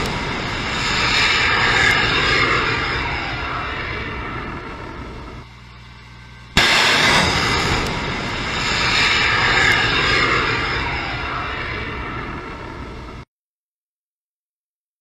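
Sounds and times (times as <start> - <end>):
steady rumble: 0.0 - 13.2
rocket motor roar: 0.0 - 13.3
missile launch blast: 6.6 - 13.2.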